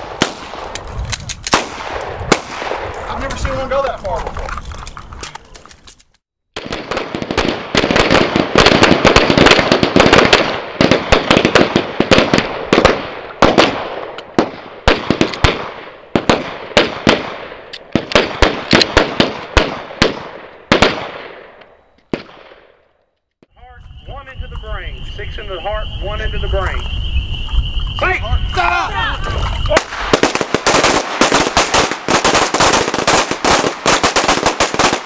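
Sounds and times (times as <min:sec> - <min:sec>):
pistols firing rapid shots: 0:06.6 - 0:21.5, 0:29.8 - 0:35.0.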